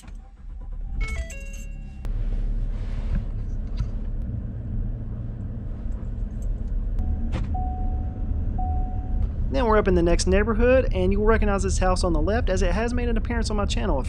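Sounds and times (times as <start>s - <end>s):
truck engine rumbling: 0.0s - 14.0s
steady beep tone: 7.0s - 9.2s.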